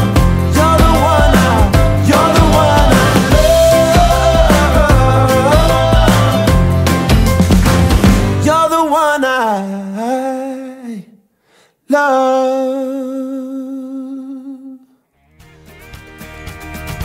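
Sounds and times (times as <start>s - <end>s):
person singing unaccompanied: 0.0s - 6.9s
music with guitar: 0.0s - 8.5s, 15.1s - 17.0s.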